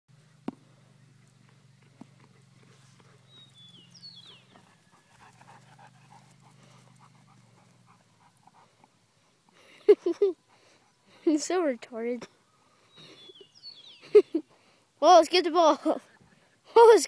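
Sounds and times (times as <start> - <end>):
dogs panting: 1.8 - 11.5.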